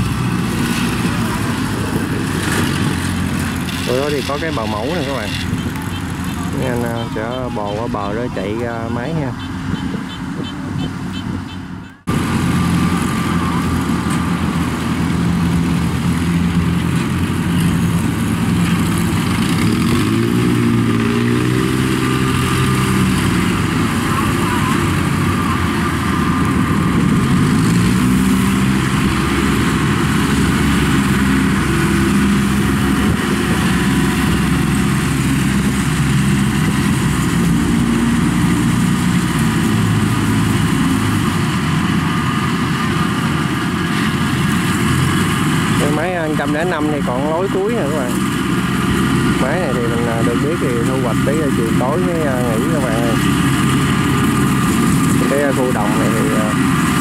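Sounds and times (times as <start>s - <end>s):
tracked vehicle engine running: 0.0s - 57.0s.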